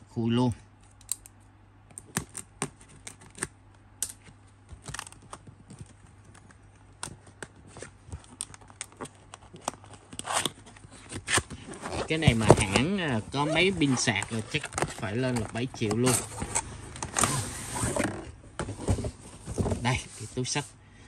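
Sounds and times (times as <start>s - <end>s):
faint low hum: 0.0s - 21.0s
cardboard box being opened: 9.0s - 20.3s.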